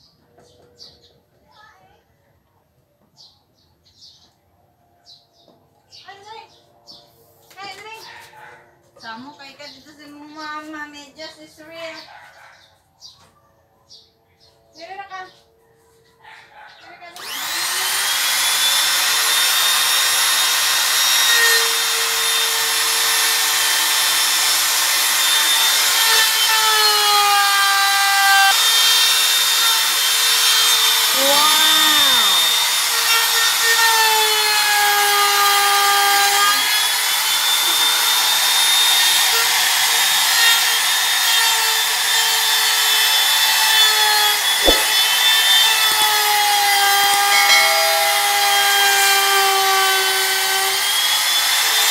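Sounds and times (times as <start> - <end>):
router cutting into wood: 17.2 - 51.9
knock: 44.6 - 45.2.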